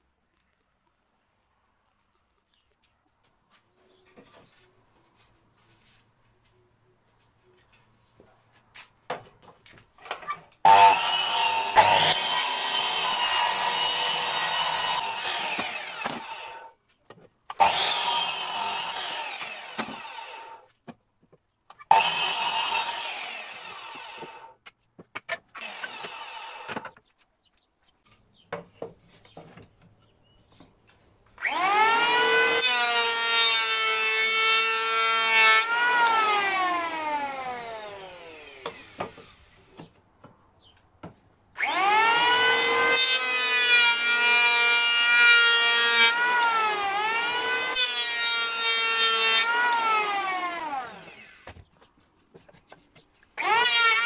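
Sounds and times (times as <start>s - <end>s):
mitre saw cutting wood: 10.0s - 16.8s, 17.5s - 20.8s, 21.7s - 24.6s, 25.2s - 27.0s, 31.4s - 39.9s, 41.6s - 51.6s, 53.4s - 54.0s
electric hand planer whining: 10.7s - 16.7s, 17.5s - 20.6s, 21.9s - 24.5s, 25.6s - 26.8s, 31.4s - 39.5s, 41.6s - 51.6s, 53.4s - 54.0s.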